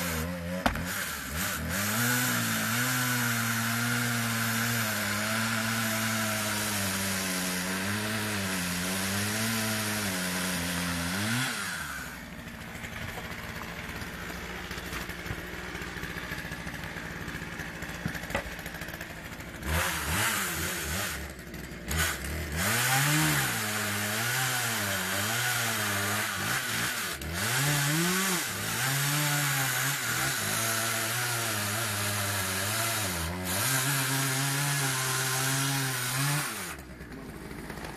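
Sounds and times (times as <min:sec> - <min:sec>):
chainsaw cutting logs: 0:00.0 - 0:37.9.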